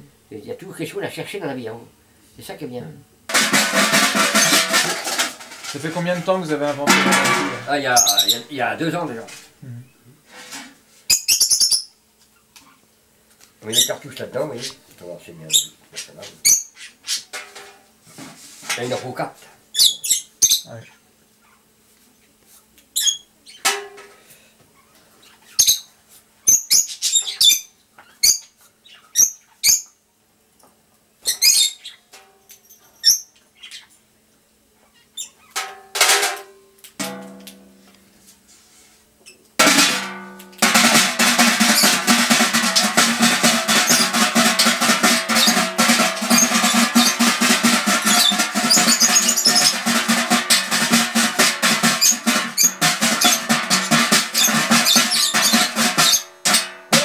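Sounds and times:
rapid dense rattle: 3.3s - 8.1s.

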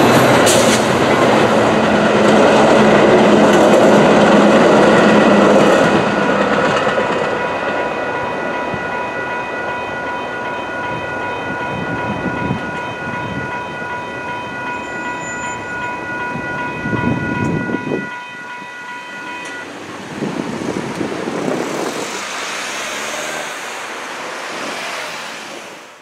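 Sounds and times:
train rumbling: 0.0s - 26.0s
crossing bells ringing: 7.1s - 19.8s
cars driving past: 19.6s - 26.0s.

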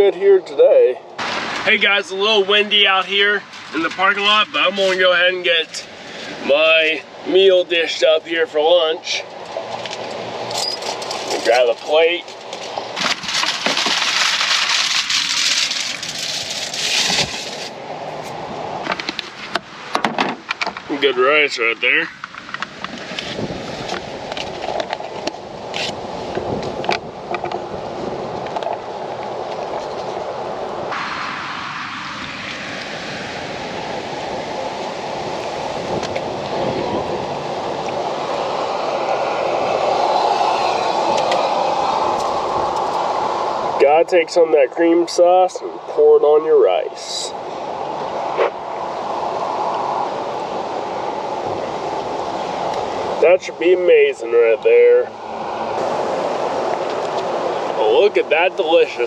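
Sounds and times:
aluminium foil crinkling: 12.2s - 17.8s
wind on microphone: 22.1s - 43.9s, 47.3s - 53.7s.

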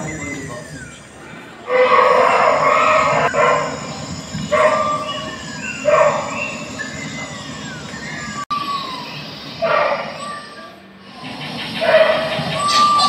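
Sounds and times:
recorded bird calls: 0.0s - 13.0s.

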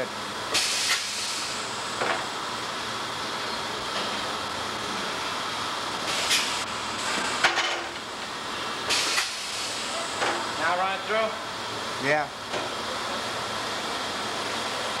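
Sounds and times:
short bursts of air hiss: 0.5s - 1.7s, 6.1s - 7.2s, 8.8s - 10.0s
shop hiss: 0.5s - 2.3s, 6.0s - 7.8s, 8.5s - 11.4s.

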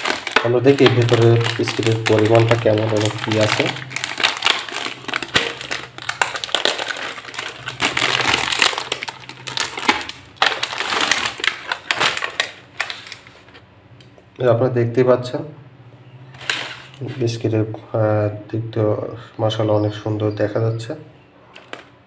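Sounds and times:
plastic wrapper crackling: 0.0s - 13.6s, 16.4s - 17.1s, 21.5s - 22.0s.

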